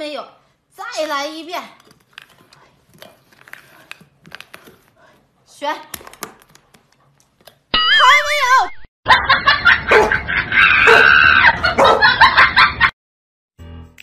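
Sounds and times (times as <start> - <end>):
loud shrieking laughter: 9.1 - 12.8.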